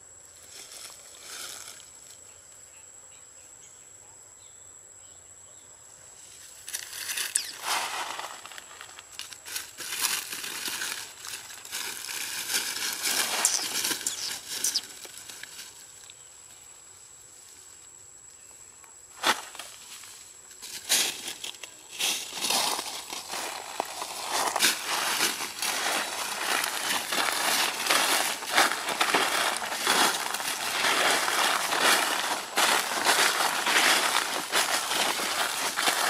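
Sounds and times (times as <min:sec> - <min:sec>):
sharp leaf crackles: 0:00.4 - 0:02.2, 0:06.4 - 0:16.2, 0:19.1 - 0:36.0
dry leaf litter rustling: 0:06.7 - 0:16.1, 0:19.2 - 0:36.0.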